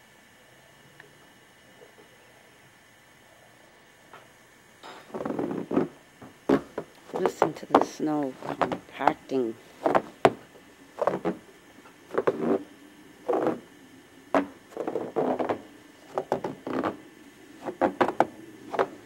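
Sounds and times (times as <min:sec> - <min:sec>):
footsteps crunching snow: 0:06.5 - 0:10.4, 0:11.0 - 0:11.4, 0:12.1 - 0:12.6.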